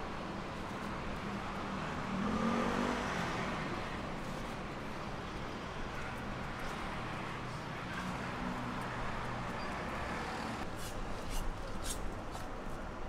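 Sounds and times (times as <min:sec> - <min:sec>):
street traffic engine hum: 0:00.0 - 0:13.0.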